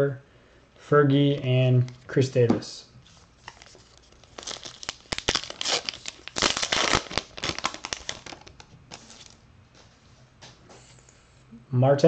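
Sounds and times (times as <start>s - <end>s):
wrapper crinkling and tearing: 3.4s - 9.4s.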